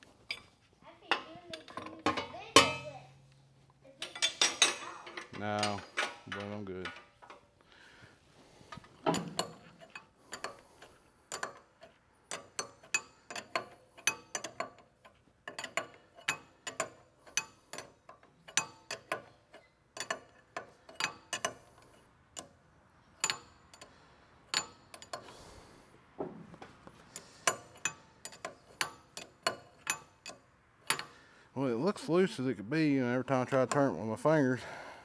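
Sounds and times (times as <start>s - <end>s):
wrench clicking on metal fittings: 9.0s - 22.6s, 23.2s - 25.5s, 27.0s - 31.3s.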